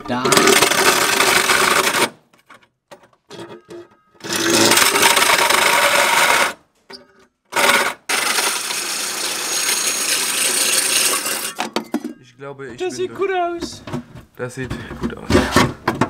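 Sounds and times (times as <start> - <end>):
hole saw grinding through sheet steel: 0.1 - 2.2, 3.3 - 6.6, 7.5 - 11.7.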